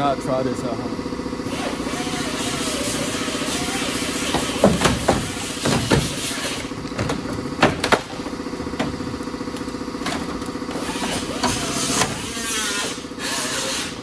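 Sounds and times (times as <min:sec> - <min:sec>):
steady mechanical hum: 0:00.0 - 0:14.0
sheet metal knocks and bangs: 0:04.2 - 0:06.3
screech of bending steel: 0:10.7 - 0:14.0.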